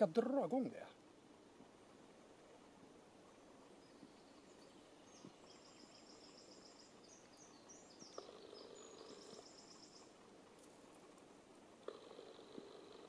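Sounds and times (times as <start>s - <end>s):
distant songbird singing: 3.4s - 11.0s.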